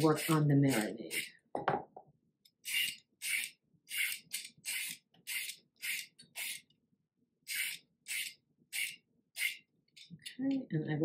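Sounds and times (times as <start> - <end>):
vegetable peeler scraping carrot: 0.0 - 1.3, 2.6 - 6.7, 7.4 - 9.6.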